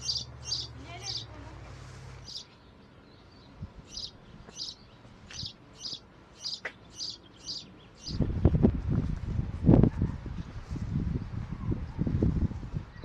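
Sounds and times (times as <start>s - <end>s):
songbird chirping: 0.0s - 8.7s.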